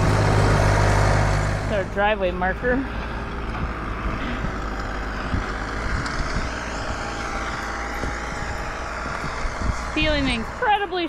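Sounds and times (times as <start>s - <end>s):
tractor diesel engine running: 0.0s - 11.0s.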